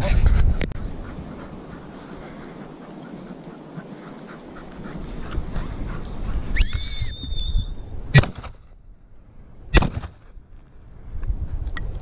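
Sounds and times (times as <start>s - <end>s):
walking through dry grass: 0.4s - 6.6s
shrill dog whistle: 6.6s - 7.8s.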